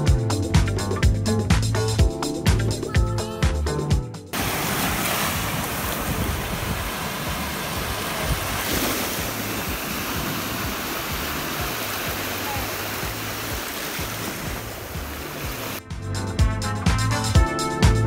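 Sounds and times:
music with steady beat: 0:00.0 - 0:04.4, 0:12.9 - 0:18.0
small waves on sandy beach: 0:04.4 - 0:15.8.

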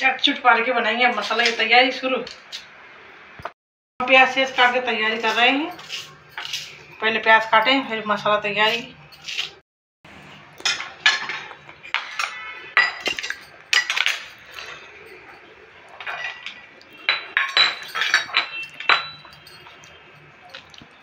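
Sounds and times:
steel utensils clinking: 0:04.5 - 0:09.6, 0:10.6 - 0:21.0.

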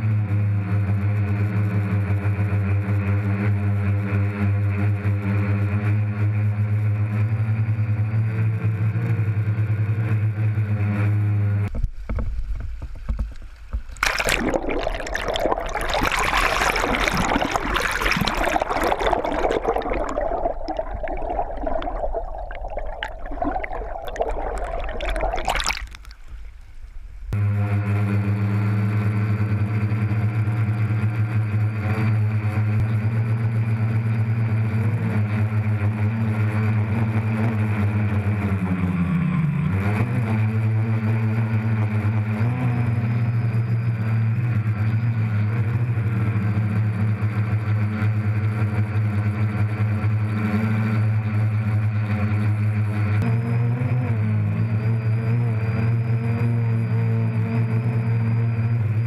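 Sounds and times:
muffled underwater creek rushing: 0:12.2 - 0:27.4.

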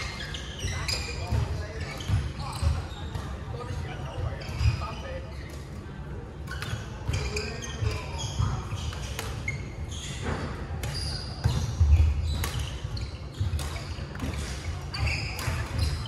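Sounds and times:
shoes squeaking: 0:00.0 - 0:16.0
racket hitting shuttlecock: 0:08.8 - 0:09.6, 0:10.4 - 0:16.0.

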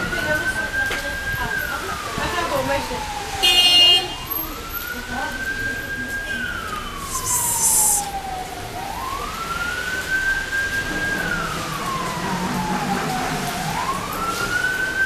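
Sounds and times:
emergency siren wailing: 0:00.0 - 0:15.0
short hiss: 0:07.0 - 0:08.1.

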